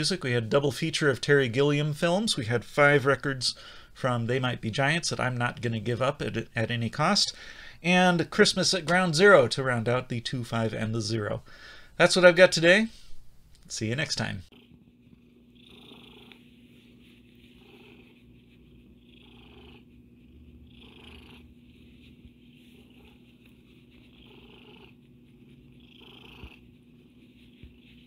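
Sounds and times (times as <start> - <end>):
cat purring: 14.5 - 28.0.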